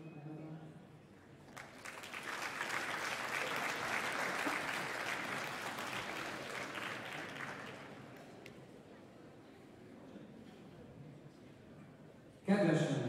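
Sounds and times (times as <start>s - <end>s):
audience applauding: 1.5s - 8.5s.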